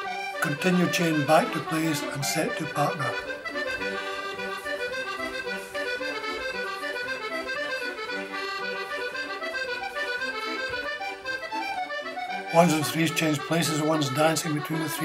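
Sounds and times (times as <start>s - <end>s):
accordion dance music: 0.0s - 15.0s.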